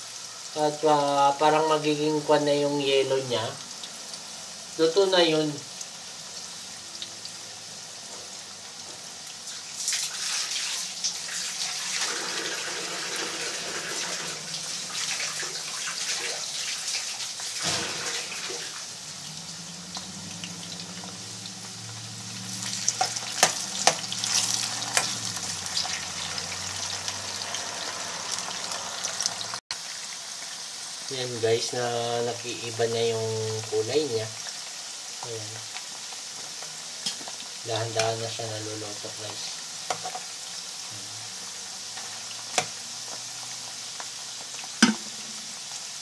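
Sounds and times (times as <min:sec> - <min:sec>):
potatoes sizzling in hot oil: 0:00.0 - 0:46.0.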